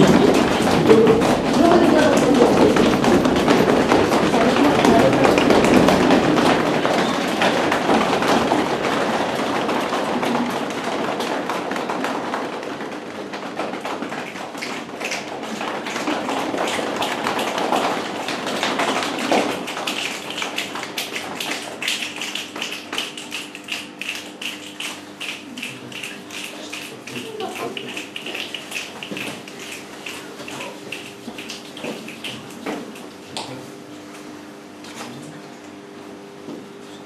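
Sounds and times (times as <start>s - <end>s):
hands tapping rhythmically: 0.0s - 33.6s.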